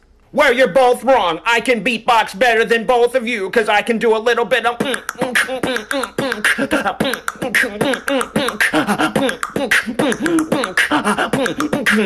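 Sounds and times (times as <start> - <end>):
man beatboxing: 4.0 - 12.0.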